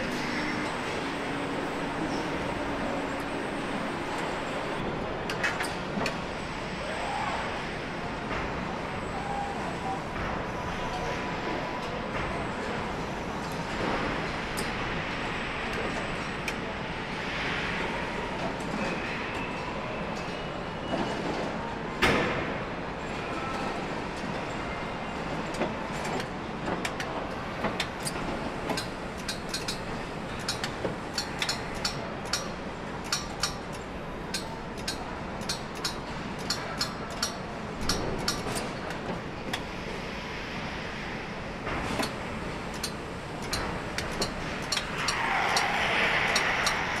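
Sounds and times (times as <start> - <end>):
factory floor background noise: 0.0 - 47.0
sharp irregular clicks and clacks: 25.5 - 39.6, 41.9 - 47.0.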